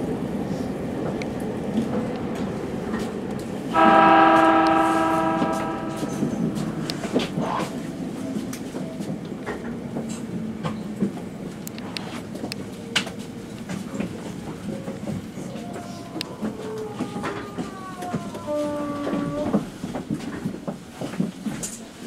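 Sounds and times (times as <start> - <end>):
train rolling noise: 0.0 - 22.0
train horn blast: 3.7 - 7.6.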